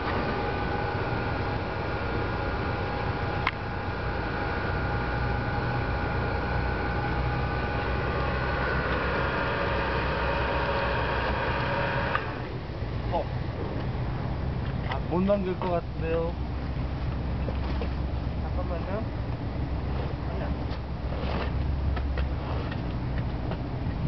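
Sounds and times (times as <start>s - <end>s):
capstan machinery humming: 0.0s - 13.1s
machinery whine: 0.0s - 13.8s.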